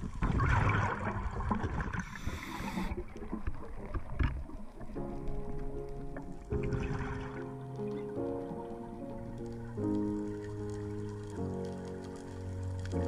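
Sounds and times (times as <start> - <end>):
rush of bubbles underwater: 0.0 - 11.4
clicks and crackles underwater: 0.0 - 13.0
muffled water noise: 0.0 - 13.0
music: 4.8 - 13.0.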